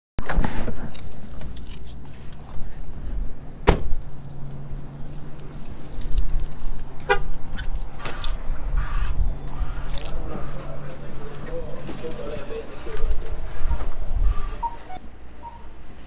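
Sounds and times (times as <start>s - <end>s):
keys jangling: 0.8s - 3.0s, 3.8s - 10.6s
truck door slamming: 3.6s - 4.0s
truck door opening: 3.6s - 4.2s.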